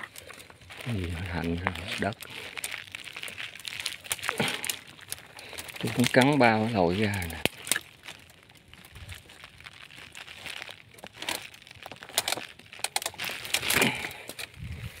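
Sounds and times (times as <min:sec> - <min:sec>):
twigs snapping: 0:00.0 - 0:14.6
twigs and leaves rustling: 0:00.0 - 0:15.0.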